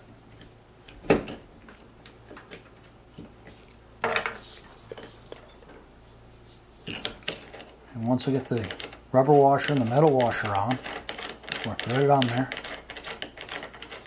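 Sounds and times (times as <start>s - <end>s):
metal washers and nut clinking: 6.9s - 14.0s.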